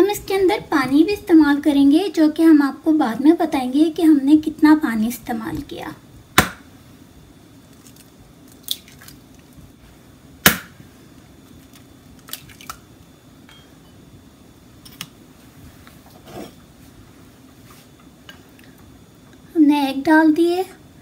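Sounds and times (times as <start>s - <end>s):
faint steady hum: 0.0s - 21.0s
egg cracking against bowl: 7.7s - 9.4s, 11.6s - 12.9s.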